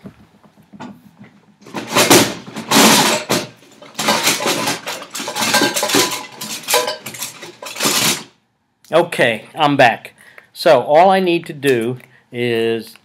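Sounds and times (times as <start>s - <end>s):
metal objects clattering: 1.6s - 8.4s.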